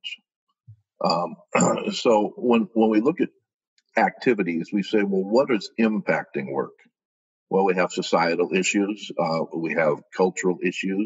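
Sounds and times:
man speaking: 0:01.0 - 0:03.3, 0:04.0 - 0:06.7, 0:07.5 - 0:11.0.

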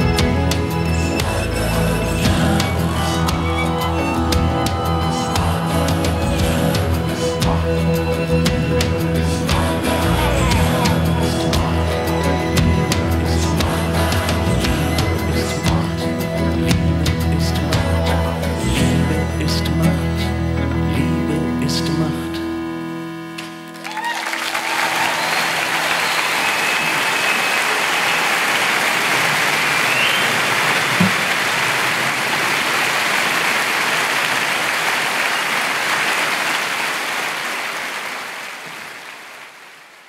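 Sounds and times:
live band closing chord: 0:00.0 - 0:29.4
audience applauding: 0:23.7 - 0:40.0
whistles from audience: 0:23.9 - 0:30.8, 0:35.2 - 0:35.8.

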